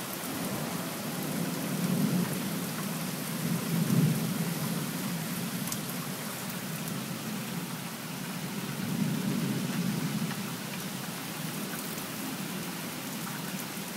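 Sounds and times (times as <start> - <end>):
steady rain falling: 0.0 - 13.9
low rumble of thunder: 0.4 - 5.5.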